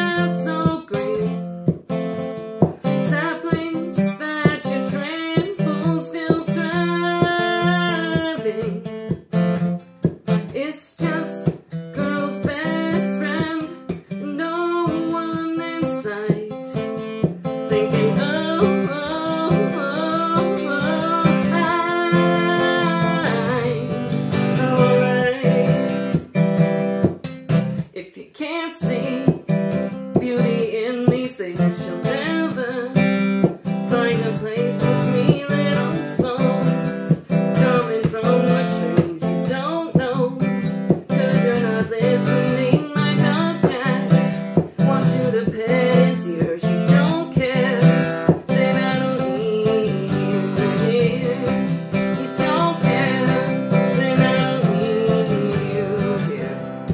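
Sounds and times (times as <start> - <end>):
acoustic guitar strumming: 0.0 - 56.9
woman singing: 0.0 - 56.9.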